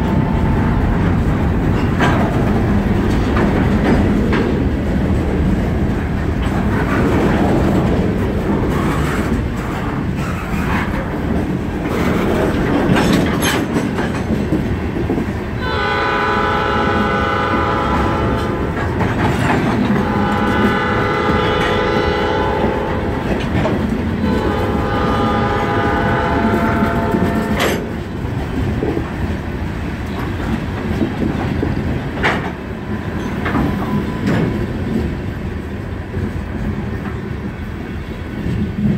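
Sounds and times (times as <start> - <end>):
freight cars rumbling and clattering: 0.0 - 38.9
train horn blasts: 15.6 - 19.0, 19.9 - 23.5, 24.2 - 27.9.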